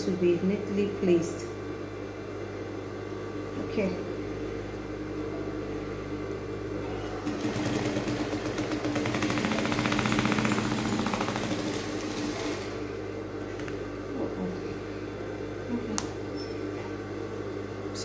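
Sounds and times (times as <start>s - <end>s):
sewing machine motor hum: 6.8s - 13.9s
sewing machine stitching: 7.2s - 12.8s.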